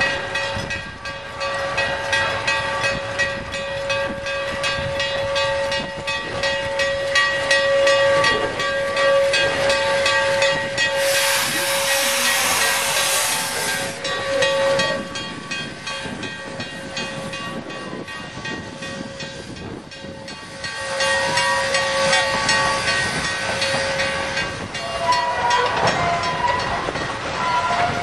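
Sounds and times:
train clicks and knocks: 0:00.0 - 0:28.0
loud steam hiss: 0:10.2 - 0:14.4, 0:20.4 - 0:24.9.

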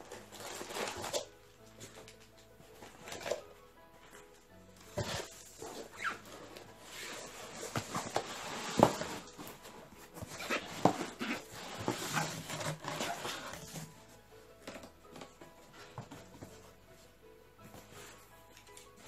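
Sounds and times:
cardboard boxes rustling and scraping: 0:00.0 - 0:02.1, 0:04.0 - 0:19.0.

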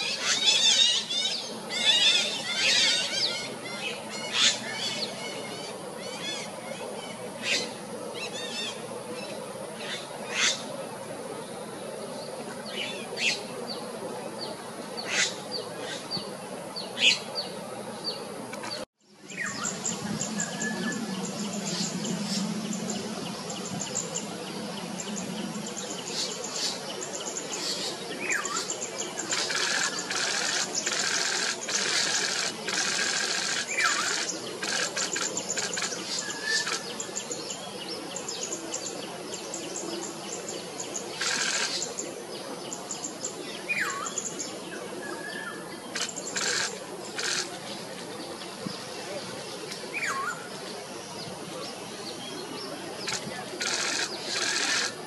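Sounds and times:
small birds chirping: 0:12.7 - 0:55.0
buzzy rattling bird calls: 0:19.3 - 0:37.3, 0:40.8 - 0:42.1, 0:45.9 - 0:47.8, 0:53.0 - 0:55.0.

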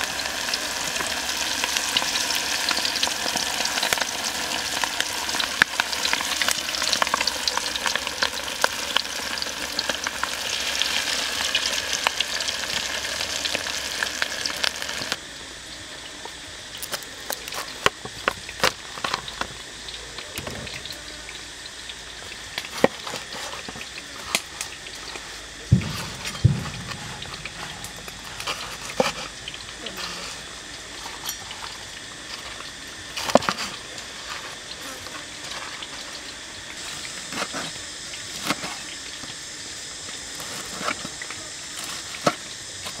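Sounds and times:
oil popping: 0:00.0 - 0:15.2, 0:21.7 - 0:39.4
pork deep-frying in hot oil: 0:00.0 - 0:43.0.

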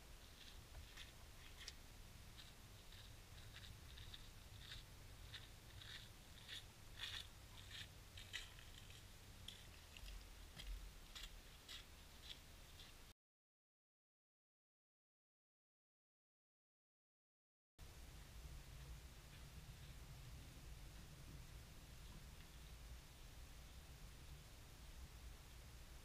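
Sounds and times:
footsteps crunching on snow: 0:00.2 - 0:13.0.

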